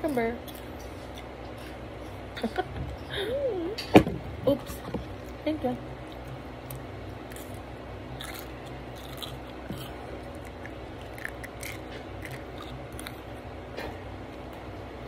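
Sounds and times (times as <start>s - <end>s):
toddler chewing: 6.0s - 13.4s.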